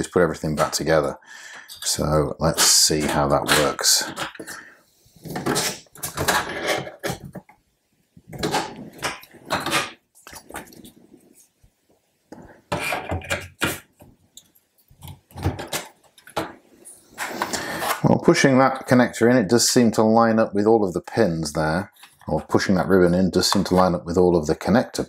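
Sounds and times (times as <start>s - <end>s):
plastic and metal parts clattering: 1.7s - 4.6s, 5.2s - 7.5s, 8.3s - 10.9s, 15.0s - 16.6s.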